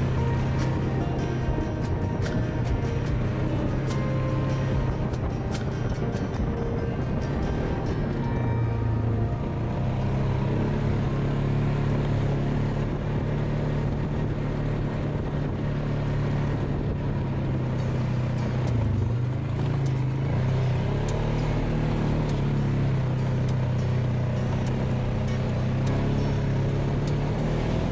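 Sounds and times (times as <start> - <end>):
atv engine running: 0.0 - 27.9
tyre and trail noise: 0.0 - 27.9.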